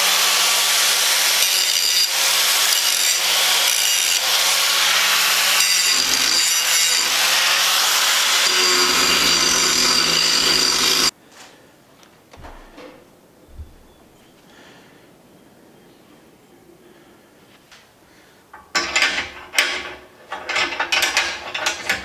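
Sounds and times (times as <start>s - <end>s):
angle grinder grinding steel: 0.0s - 11.1s.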